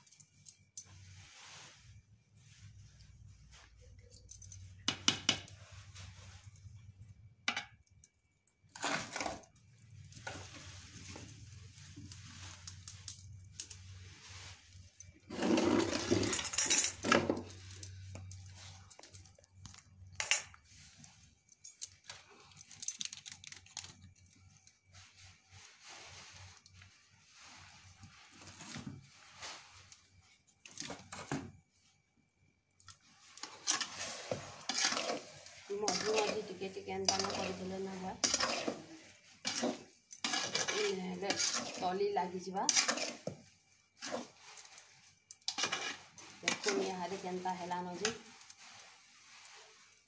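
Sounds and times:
spatula scraping steel bowl: 0:08.8 - 0:09.5, 0:15.2 - 0:18.3, 0:33.4 - 0:48.8.

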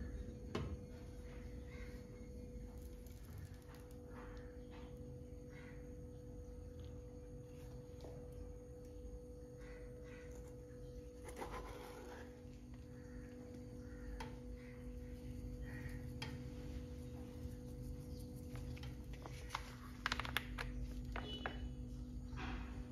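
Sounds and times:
steady low hum: 0:00.0 - 0:22.9
spatula scraping frying pan: 0:11.2 - 0:12.4
sachet clicks and crinkles: 0:18.5 - 0:21.6.

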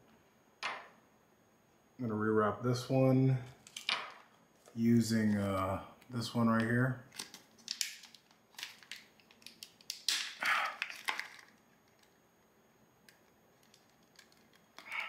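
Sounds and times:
plastic bag crinkling: 0:07.1 - 0:12.2.

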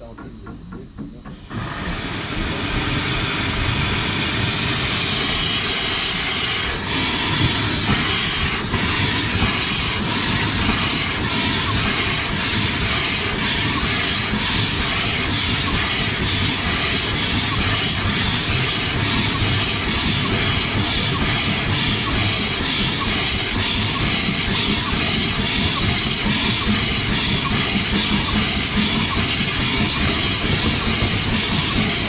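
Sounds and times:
locomotive exhaust beats: 0:00.0 - 0:32.0
steam hissing: 0:00.5 - 0:32.0.

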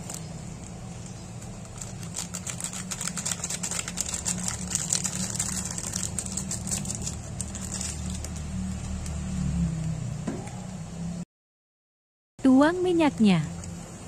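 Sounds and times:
foil sachet crinkling: 0:00.0 - 0:09.2.

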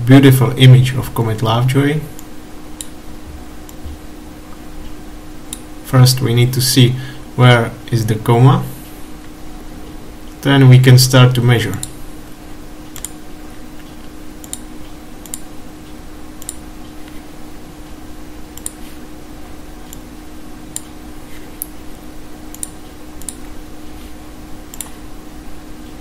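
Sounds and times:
low electrical hum: 0:00.0 - 0:26.0
computer mouse clicking: 0:12.9 - 0:13.2, 0:13.8 - 0:15.5, 0:16.4 - 0:17.2, 0:18.6 - 0:18.8, 0:22.5 - 0:23.4, 0:24.7 - 0:25.0.

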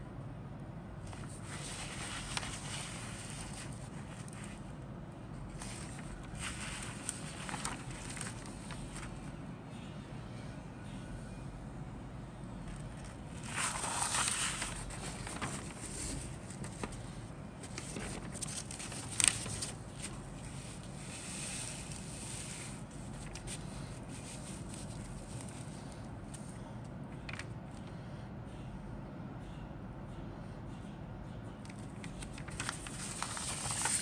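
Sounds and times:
paper crackle: 0:01.1 - 0:04.7, 0:05.5 - 0:09.3, 0:12.8 - 0:26.5, 0:32.0 - 0:34.0
paper rustling: 0:01.1 - 0:04.7, 0:05.5 - 0:09.3, 0:12.7 - 0:26.5, 0:32.0 - 0:34.0.

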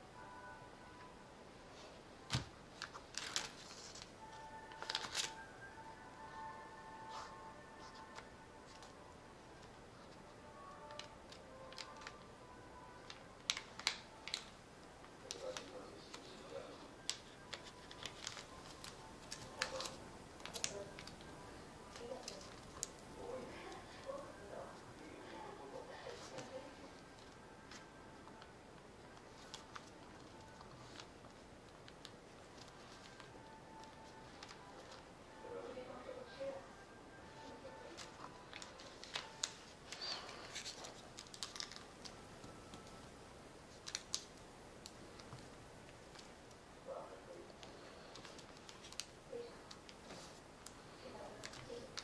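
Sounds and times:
paper crackling and rustling: 0:02.2 - 0:05.5, 0:13.0 - 0:24.8, 0:25.7 - 0:28.5, 0:29.1 - 0:35.1, 0:37.3 - 0:43.0, 0:43.6 - 0:46.5, 0:47.5 - 0:52.0.

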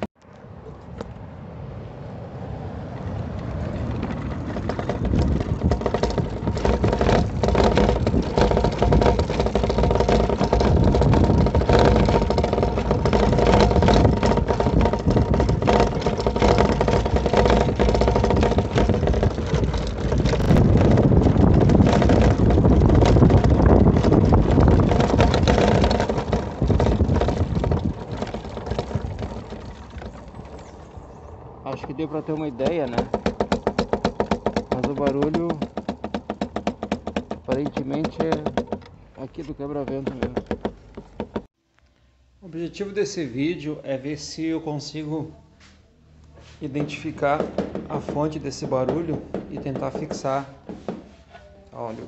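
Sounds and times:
electric scooter on cobblestones: 0:00.0 - 0:41.5
windscreen rattling: 0:02.8 - 0:41.6, 0:46.6 - 0:51.2.

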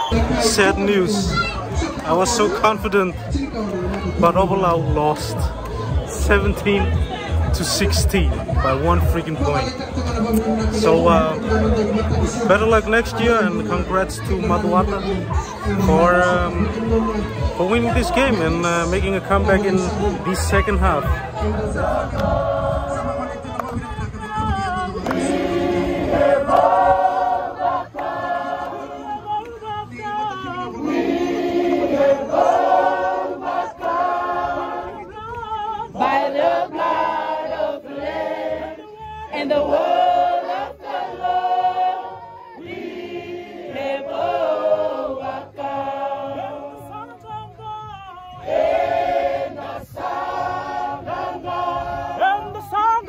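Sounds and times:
group singing a hymn: 0:10.5 - 0:23.7, 0:24.6 - 0:47.3, 0:48.3 - 0:53.0.

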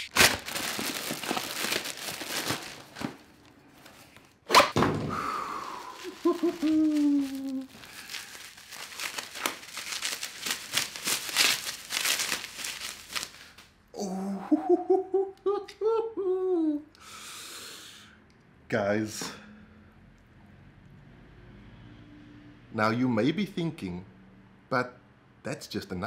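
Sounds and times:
packaging being torn open: 0:00.0 - 0:04.3, 0:05.7 - 0:13.7
wrapping crinkling: 0:00.0 - 0:04.4, 0:05.3 - 0:13.7
man saying ooh: 0:06.0 - 0:07.7, 0:13.9 - 0:17.0.

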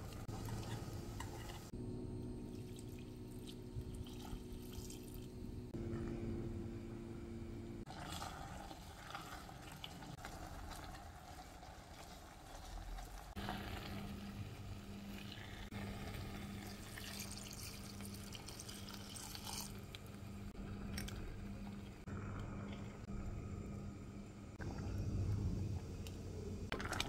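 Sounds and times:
steady low hum: 0:00.0 - 0:27.0
liquid bubbling: 0:07.8 - 0:23.2, 0:24.6 - 0:27.0
wet stirring in a pot: 0:07.9 - 0:20.0
wine pouring into pot: 0:07.9 - 0:20.0, 0:26.7 - 0:27.0.

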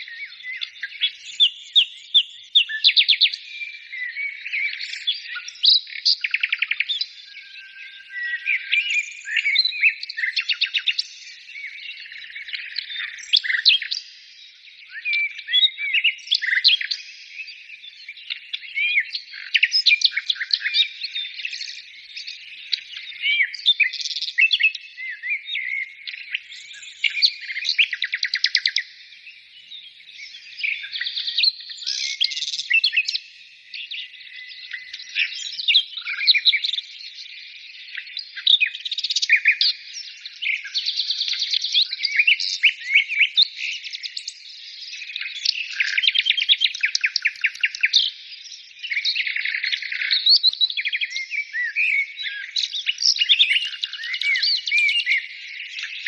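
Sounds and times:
songbirds singing trills: 0:00.0 - 0:56.0.

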